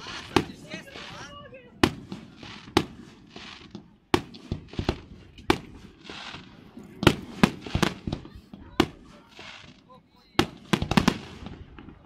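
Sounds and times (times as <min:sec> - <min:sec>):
firework hiss: 0:00.0 - 0:09.9
firework bangs: 0:00.0 - 0:12.0.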